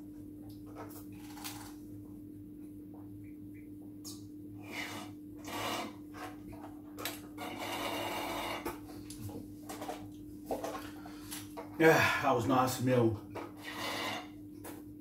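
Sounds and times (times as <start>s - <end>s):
slurping juice through straw: 4.6s - 6.0s, 7.4s - 8.7s, 13.6s - 14.4s.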